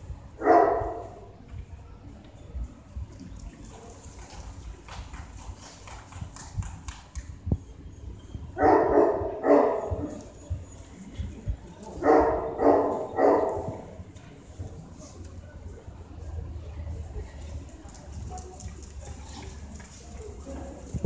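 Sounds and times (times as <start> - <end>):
large dog barking deep woofs: 0.4 - 1.3, 8.6 - 10.2, 12.0 - 14.0.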